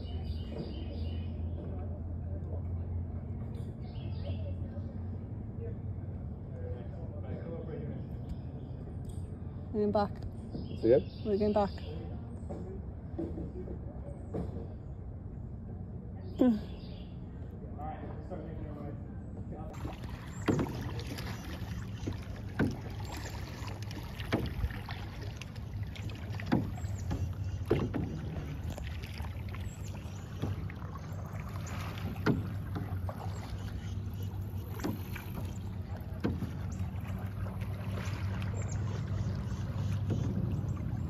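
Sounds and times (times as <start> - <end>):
steady low hum: 0.0 - 41.0
paddle splashing into water: 19.7 - 41.0.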